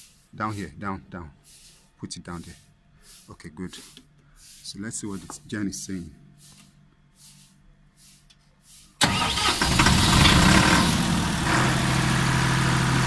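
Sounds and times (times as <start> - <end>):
generator engine cranking and running: 9.0 - 13.0.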